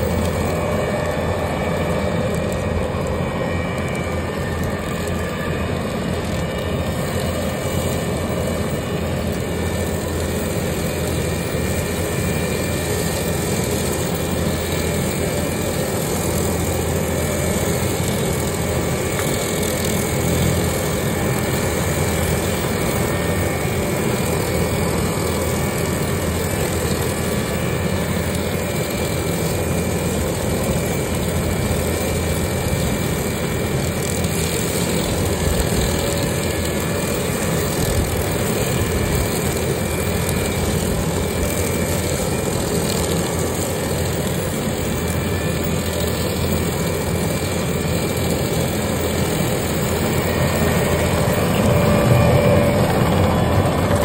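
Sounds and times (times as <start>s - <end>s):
brush cutter whine: 0.0s - 54.0s
diesel engine drone: 0.0s - 54.0s.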